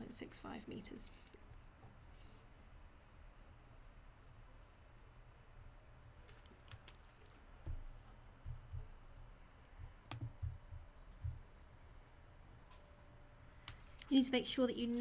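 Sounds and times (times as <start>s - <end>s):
steady low hum: 0.0s - 15.0s
soft low thumps: 7.5s - 11.6s.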